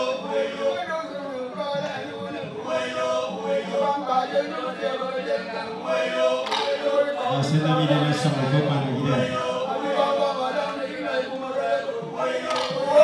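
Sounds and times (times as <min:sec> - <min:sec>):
elderly man singing: 0:06.4 - 0:13.0
brief knock or clap: 0:06.5 - 0:06.8, 0:12.5 - 0:12.9.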